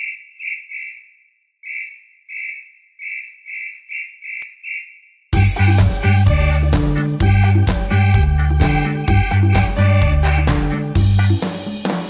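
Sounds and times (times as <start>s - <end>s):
whistle blasts: 0.0s - 10.8s
band with bass and drums: 5.4s - 12.0s.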